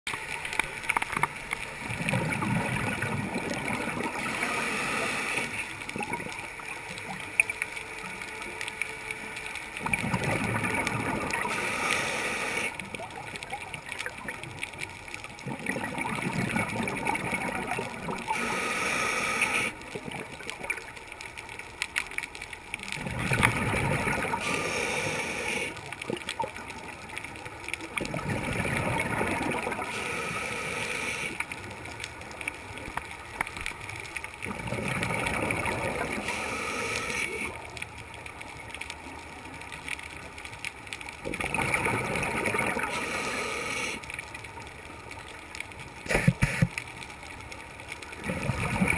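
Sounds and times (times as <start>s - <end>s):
exhaled bubbles gurgling: 1.0s - 7.5s, 9.8s - 21.0s, 22.7s - 32.9s, 33.5s - 37.9s, 41.1s - 44.4s, 48.1s - 48.9s
regulator inhale hiss: 4.1s - 5.8s, 11.4s - 12.9s, 18.3s - 19.8s, 24.3s - 25.9s, 29.8s - 31.5s, 36.0s - 37.6s, 42.8s - 44.1s.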